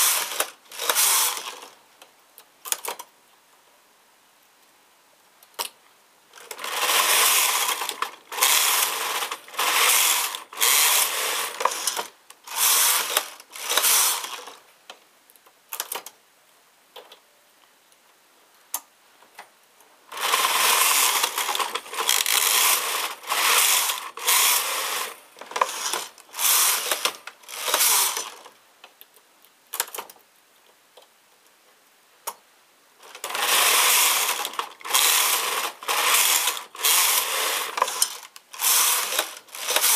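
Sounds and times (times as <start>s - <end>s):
knitting machine carriage rattling: 0.0s - 1.8s, 6.4s - 14.6s, 20.1s - 28.5s, 33.0s - 39.9s.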